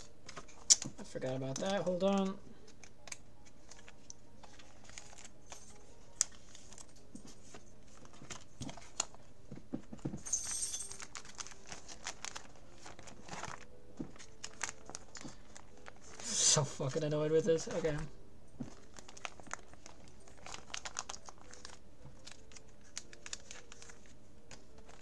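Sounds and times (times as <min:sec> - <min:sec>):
plastic sleeves crinkling: 0:00.0 - 0:10.0, 0:10.9 - 0:25.0
cards tapping and clicking: 0:00.0 - 0:12.4.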